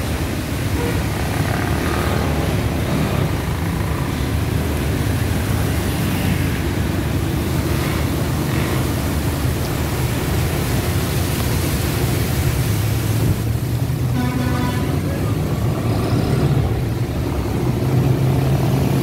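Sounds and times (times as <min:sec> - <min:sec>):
auto-rickshaw engine running: 0:00.0 - 0:11.1
rain hiss: 0:00.0 - 0:19.0
tyres on wet road: 0:00.0 - 0:19.0.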